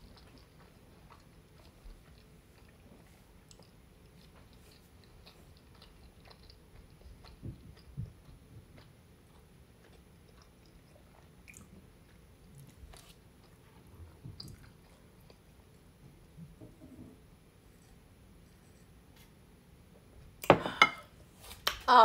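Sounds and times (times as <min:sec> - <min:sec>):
close chewing with wet clicks: 0:00.0 - 0:15.9.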